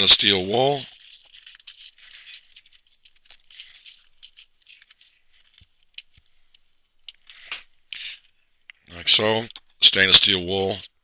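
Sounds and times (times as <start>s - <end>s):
steel wool scratchy crinkling: 0.0s - 7.9s.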